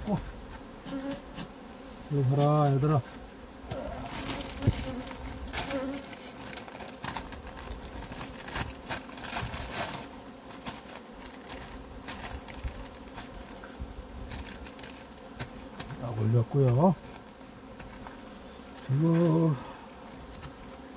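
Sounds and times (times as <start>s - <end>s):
honeybees buzzing: 0.0s - 20.9s
plastic sheet crinkling: 3.8s - 15.1s.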